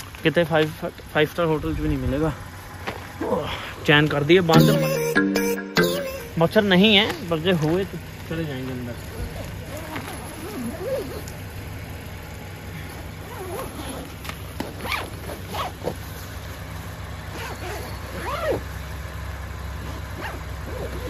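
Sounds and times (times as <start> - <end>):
tent zipper zipping: 9.7 - 11.2, 13.2 - 16.0, 17.3 - 18.6, 19.8 - 21.0.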